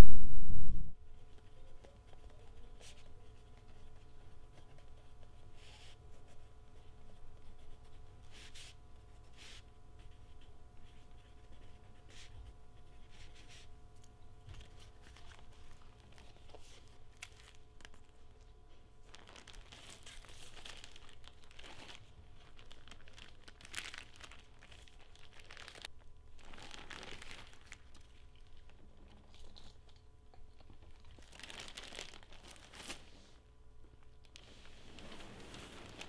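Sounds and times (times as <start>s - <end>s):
faint low hum: 0.0s - 36.0s
plastic bag crinkling: 14.6s - 18.3s, 19.0s - 29.9s, 30.7s - 33.0s, 34.2s - 36.0s.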